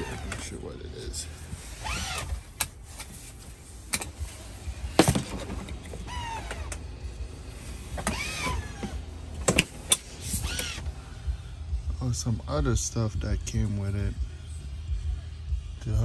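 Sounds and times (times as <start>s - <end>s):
whining squeaks: 0.0s - 0.6s, 1.8s - 2.4s, 5.8s - 6.8s, 8.0s - 9.0s, 9.9s - 10.9s.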